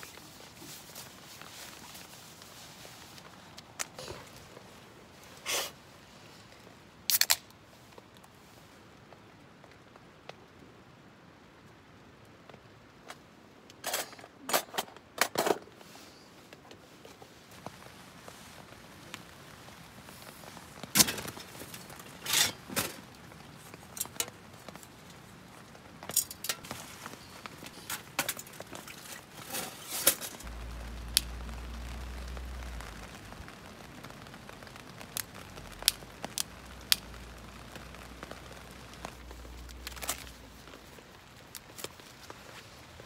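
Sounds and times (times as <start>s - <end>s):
camping gear rustling: 0.0s - 8.7s, 12.6s - 43.0s
low steady hum: 30.4s - 33.6s.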